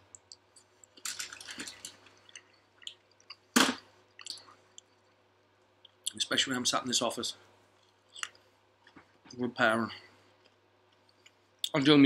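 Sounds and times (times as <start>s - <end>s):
wet mouth clicks: 4.2s - 4.9s.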